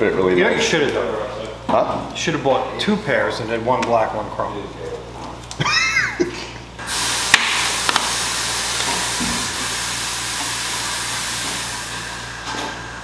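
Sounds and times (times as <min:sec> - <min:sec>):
steady air hiss: 0:06.8 - 0:13.0.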